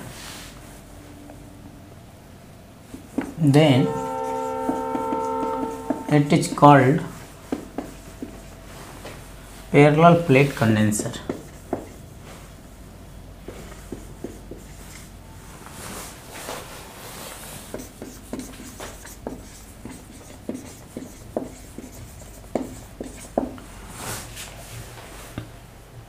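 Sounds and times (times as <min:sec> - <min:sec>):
marker squeaking on whiteboard: 0:03.2 - 0:06.7, 0:13.6 - 0:15.1, 0:17.7 - 0:23.5.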